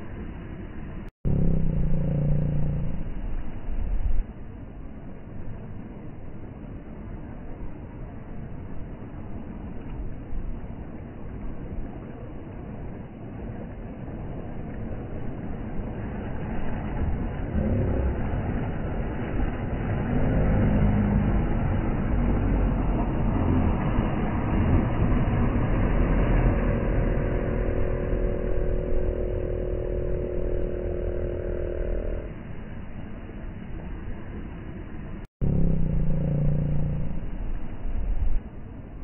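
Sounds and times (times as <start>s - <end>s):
outboard motor running: 1.3s - 3.8s, 16.4s - 32.3s, 35.4s - 37.6s
waves washing onto shore: 3.2s - 35.2s.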